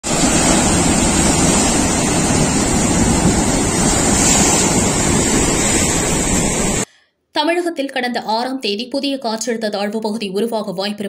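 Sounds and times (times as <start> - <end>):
waves breaking on rocks: 0.0 - 6.8
wind buffeting microphone: 0.0 - 6.8.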